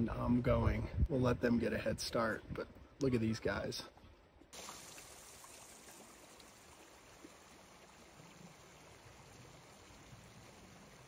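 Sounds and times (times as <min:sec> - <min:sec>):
faint outdoor rushing hiss: 0:04.5 - 0:11.0.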